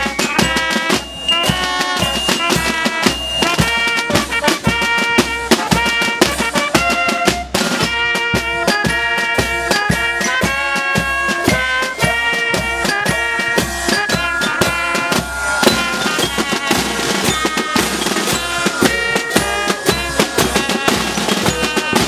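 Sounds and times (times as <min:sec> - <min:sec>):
held band melody: 0:00.0 - 0:22.0
snare drums: 0:00.0 - 0:22.0
bass drum beat: 0:10.0 - 0:22.0.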